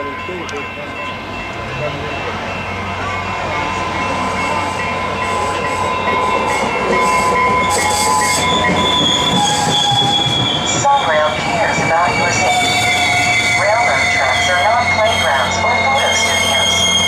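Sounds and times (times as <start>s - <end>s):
train rumble: 0.0s - 17.0s
train wheels squealing: 3.8s - 17.0s.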